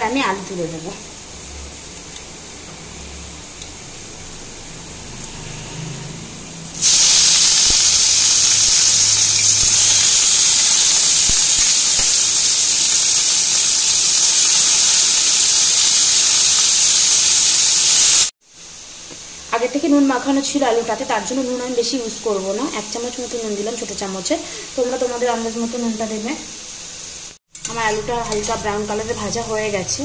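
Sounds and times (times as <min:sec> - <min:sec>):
potatoes sizzling in hot oil: 0:06.8 - 0:30.0.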